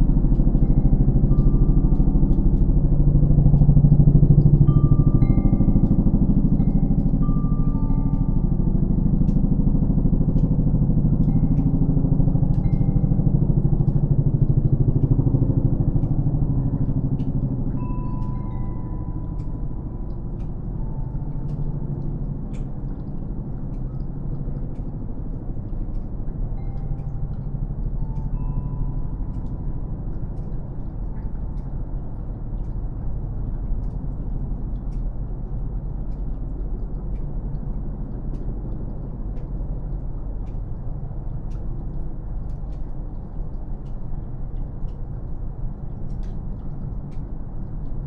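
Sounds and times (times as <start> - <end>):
snowmelt dripping: 0.0 - 48.0
steady low rumble: 0.0 - 48.0
faint wind chime tones: 0.1 - 9.6, 10.4 - 14.0, 17.6 - 22.8, 26.4 - 31.1.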